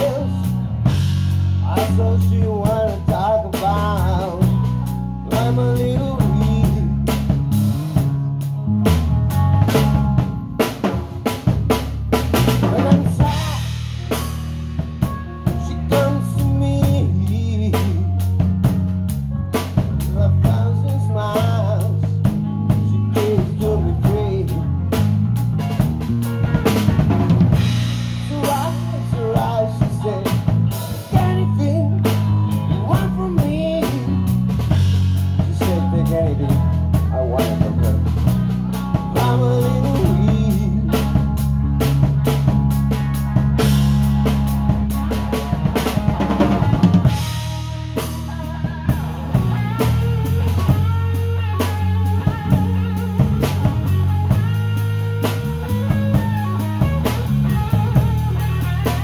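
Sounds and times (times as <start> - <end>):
bass guitar: 0.0 - 59.0
drum kit beat: 0.0 - 59.0
lead guitar bent notes: 0.0 - 59.0.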